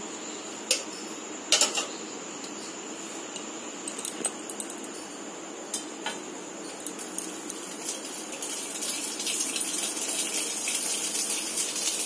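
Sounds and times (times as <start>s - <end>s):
bright sizzling hiss: 4.9s - 12.0s.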